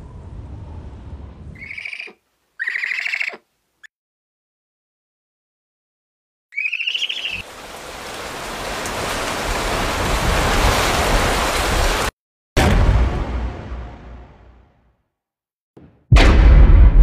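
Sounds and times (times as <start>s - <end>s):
wavering bird screech: 1.6s - 3.4s, 6.5s - 7.4s
heavy rain with low rumble: 7.3s - 12.1s
loud low boom: 12.6s - 14.8s, 15.8s - 17.0s.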